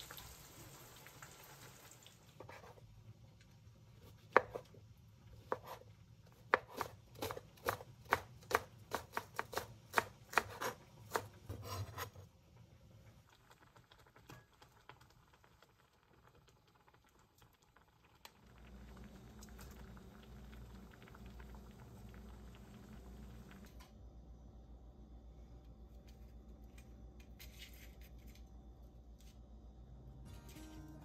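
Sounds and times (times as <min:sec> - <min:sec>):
knife chopping on cutting board: 0:04.3 - 0:04.7, 0:05.4 - 0:05.8, 0:06.4 - 0:12.1.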